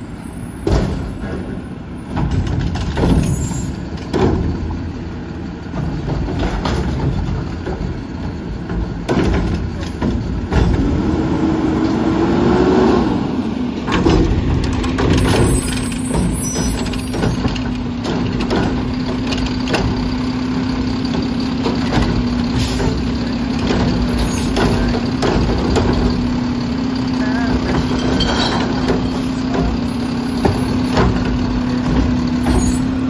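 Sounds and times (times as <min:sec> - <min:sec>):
garbage truck engine idling: 0:00.0 - 0:11.2, 0:13.3 - 0:33.0
air brakes hissing: 0:22.5 - 0:23.0.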